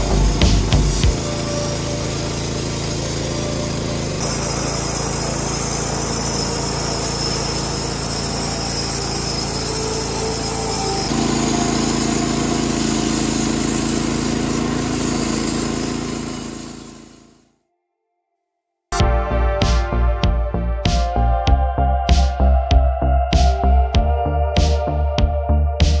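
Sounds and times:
engine running under load: 0.0s - 17.4s
band saw cutting log: 0.0s - 17.5s.

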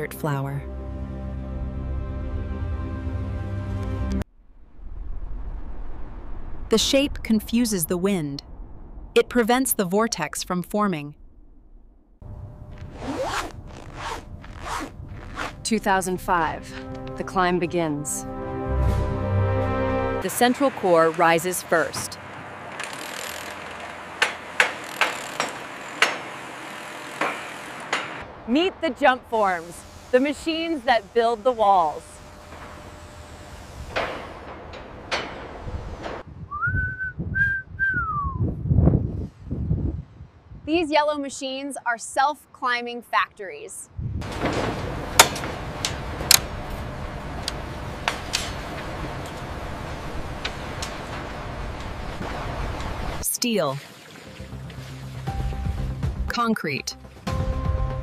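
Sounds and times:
construction site background noise: 20.2s - 36.2s
sharp knocks: 24.2s - 26.3s.

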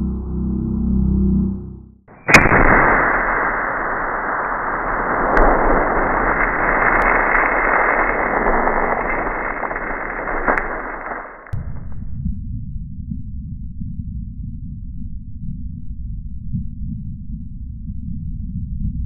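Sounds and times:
shotgun blast: 2.2s - 11.7s.

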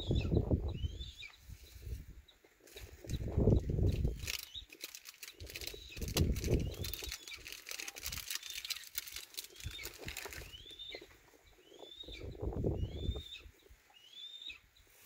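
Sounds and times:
birds chirping: 2.3s - 14.9s
dry fine crackle: 2.6s - 11.0s.

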